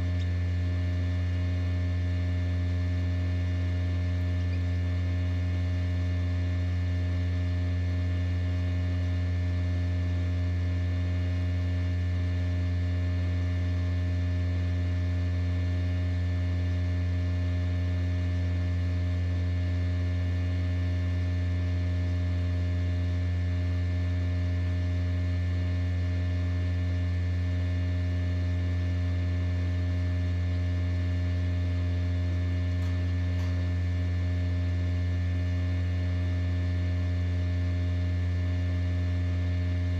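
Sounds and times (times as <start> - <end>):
incubator fan motor humming: 0.0 - 39.9.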